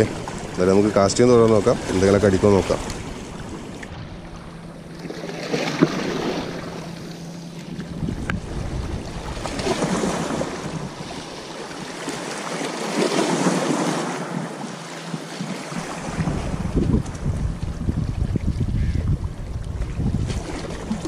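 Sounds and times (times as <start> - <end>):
small waves washing against rocks: 5.0 - 7.0, 7.6 - 14.5
wind buffeting the microphone: 7.6 - 11.1, 15.9 - 21.0.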